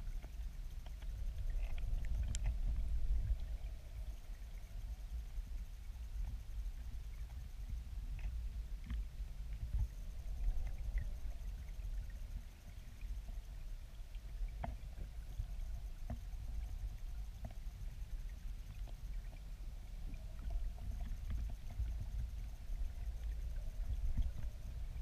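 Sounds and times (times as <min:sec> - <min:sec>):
underwater current rumble: 0:00.0 - 0:25.0
faint sharp clicks: 0:00.1 - 0:03.6, 0:08.1 - 0:11.8.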